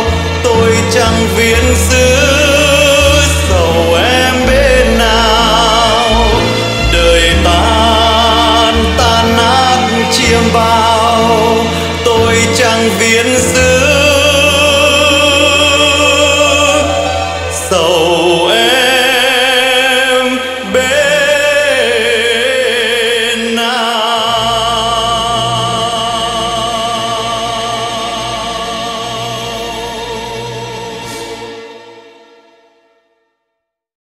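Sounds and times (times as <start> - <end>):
person singing a ballad: 0.0 - 31.6
orchestral backing: 0.0 - 33.0.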